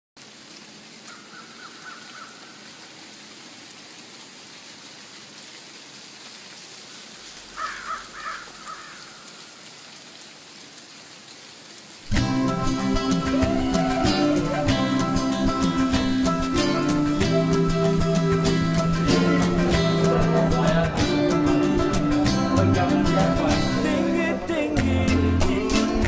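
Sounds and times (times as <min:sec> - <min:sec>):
faint outdoor hiss: 0:00.2 - 0:26.0
bird calls: 0:01.0 - 0:02.7
guitar music: 0:12.1 - 0:26.0.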